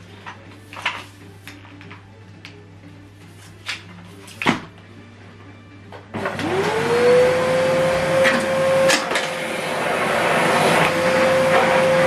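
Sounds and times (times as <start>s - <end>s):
vacuum cleaner motor whine: 6.1s - 12.0s.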